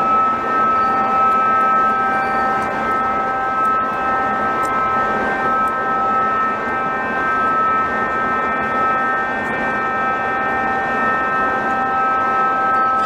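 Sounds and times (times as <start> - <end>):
jet engine whine and roar: 0.0 - 13.0.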